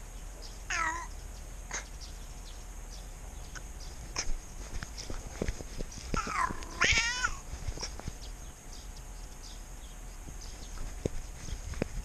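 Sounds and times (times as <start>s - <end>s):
cat meowing: 0.7s - 1.1s, 6.2s - 7.5s.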